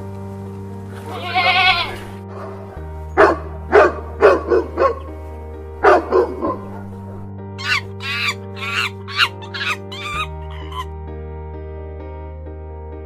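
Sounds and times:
background music: 0.0s - 13.0s
goat bleating: 1.0s - 2.2s
dog barking: 2.3s - 5.1s, 5.8s - 7.8s.

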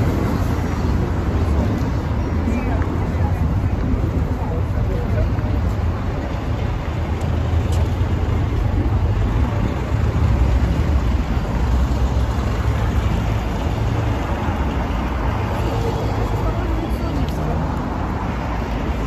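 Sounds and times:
passing vehicles: 0.0s - 19.0s.

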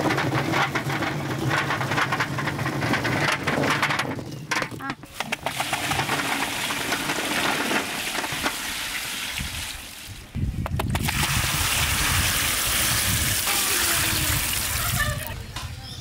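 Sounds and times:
olives tumbling into pot: 0.0s - 15.4s
water pouring and splashing: 5.1s - 15.4s.

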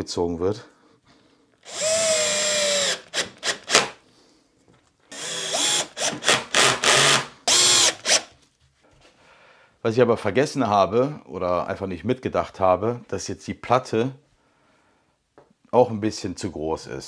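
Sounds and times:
cordless drill whining: 1.6s - 4.0s, 5.1s - 8.3s.

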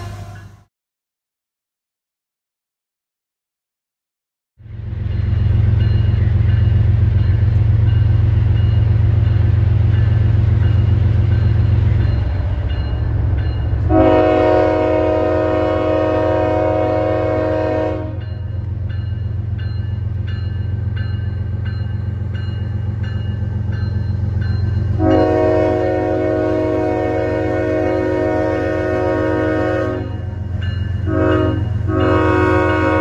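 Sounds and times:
diesel locomotive rumble: 0.0s - 0.7s, 4.6s - 33.0s
train air horn chord: 0.0s - 0.7s, 13.8s - 18.2s, 25.0s - 30.3s, 31.0s - 33.0s.

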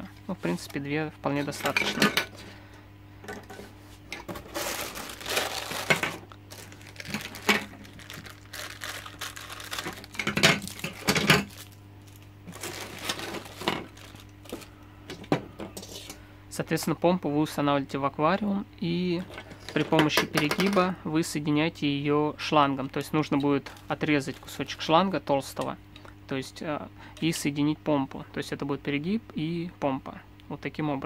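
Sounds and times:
plastic bag crinkling: 4.2s - 14.7s, 23.7s - 24.7s.

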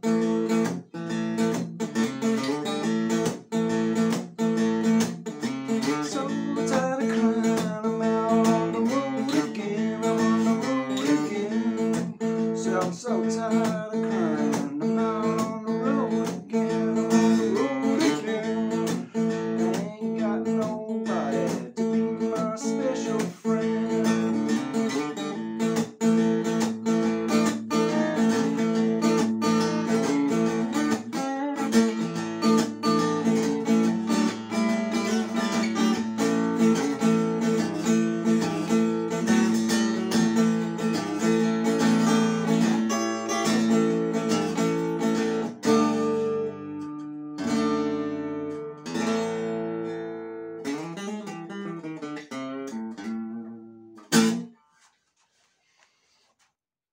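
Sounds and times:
acoustic guitar playing blues: 0.0s - 54.9s.

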